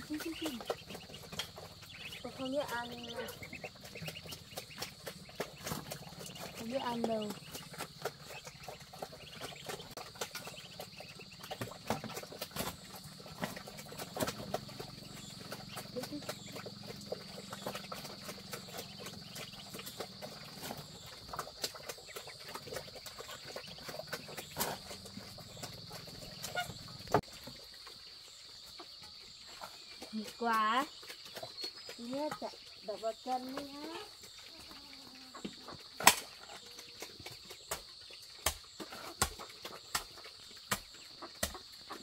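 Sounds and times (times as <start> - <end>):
ducklings pecking grain: 0.0 - 42.0.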